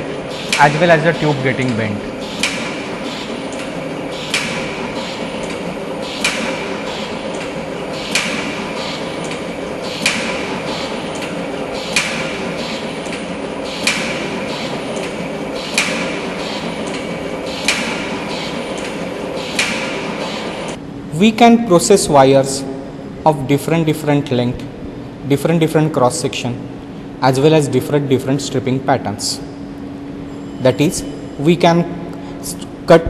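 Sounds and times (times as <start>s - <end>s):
air jet blowing: 0.0s - 20.8s
sharp machine stroke: 0.0s - 20.8s
machine mechanical hum: 0.0s - 33.0s.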